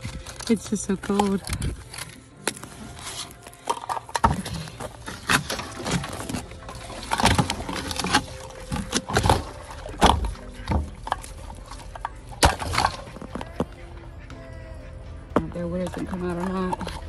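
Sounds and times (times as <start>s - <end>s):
metal waterer knocking and scraping: 3.6s - 13.8s.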